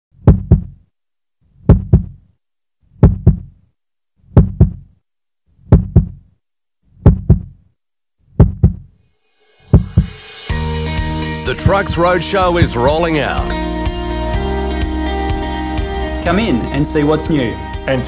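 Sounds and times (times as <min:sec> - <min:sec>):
heartbeat thumps: 0:00.2 - 0:00.8, 0:01.6 - 0:02.2, 0:03.0 - 0:03.5, 0:04.3 - 0:04.9, 0:05.7 - 0:06.2, 0:07.0 - 0:07.6, 0:08.4 - 0:08.9, 0:09.7 - 0:10.2, 0:12.6 - 0:13.0.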